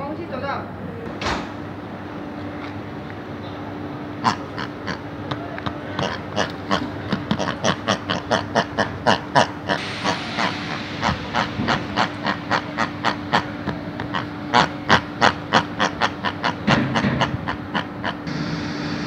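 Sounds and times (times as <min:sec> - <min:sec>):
steady low hum: 0:00.0 - 0:19.0
pig-like grunts and squeals: 0:04.2 - 0:05.1, 0:05.9 - 0:18.3.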